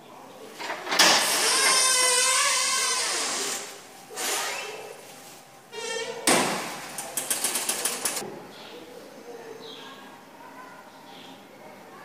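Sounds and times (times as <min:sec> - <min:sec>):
door creaking: 0:00.7 - 0:04.9, 0:05.7 - 0:08.2
door banging shut: 0:05.8 - 0:06.8.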